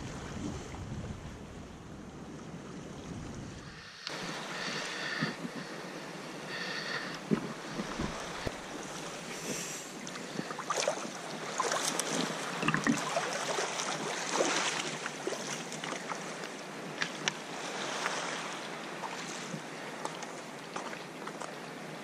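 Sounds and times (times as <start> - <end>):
water rushing along hull: 0.0 - 22.0
paddle strokes in water: 2.2 - 21.8
water splashing: 6.9 - 16.4.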